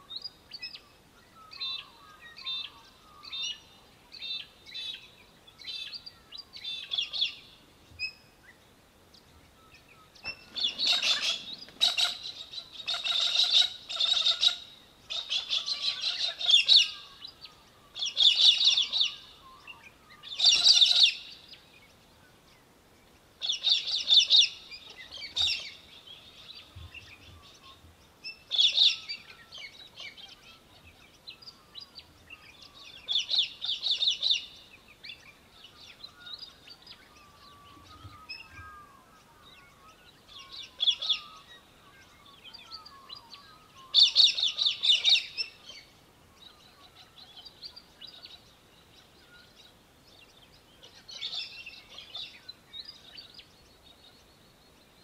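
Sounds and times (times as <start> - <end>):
falcon chattering calls: 10.6 - 17.1.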